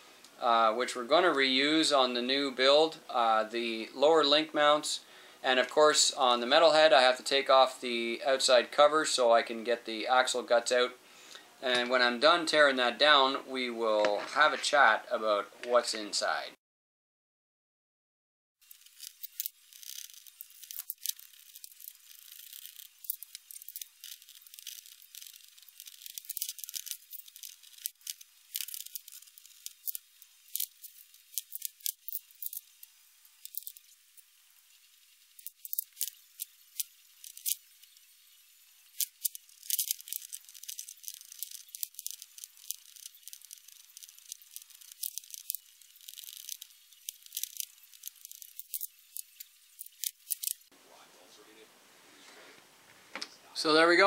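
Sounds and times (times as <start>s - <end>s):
small metal and plastic parts clattering: 18.6s - 50.7s.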